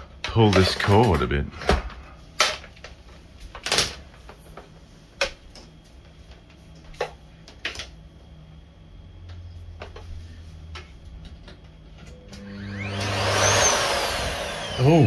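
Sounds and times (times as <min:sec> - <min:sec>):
vacuum cord being pulled out: 0:12.4 - 0:15.0.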